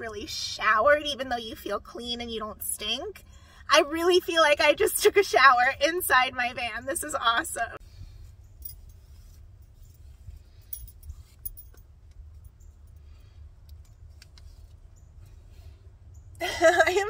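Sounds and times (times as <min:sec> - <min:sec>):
bracelets and rings clinking: 0:08.4 - 0:13.2.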